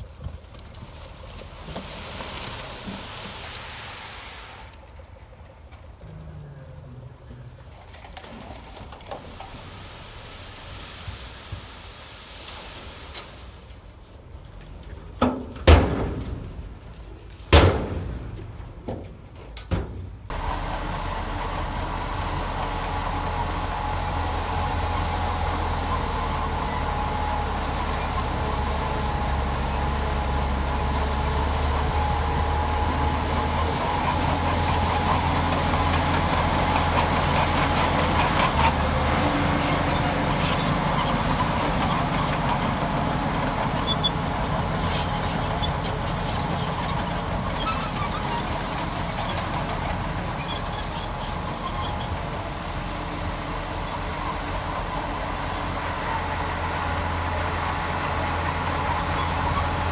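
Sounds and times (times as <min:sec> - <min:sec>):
heavy diesel engine running: 0:20.3 - 0:59.9.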